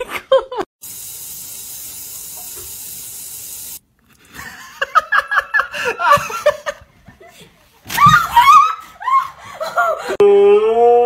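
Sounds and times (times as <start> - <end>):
steady hiss: 0.8 - 3.8.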